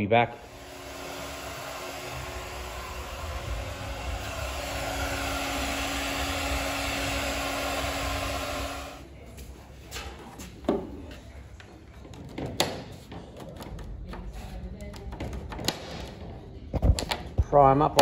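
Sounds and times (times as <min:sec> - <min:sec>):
heat gun blowing: 0:00.3 - 0:09.0.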